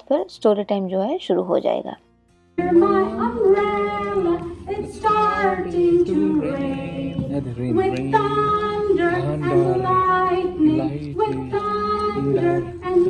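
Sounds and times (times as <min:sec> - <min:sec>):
woman singing children's song: 0:02.6 - 0:13.0.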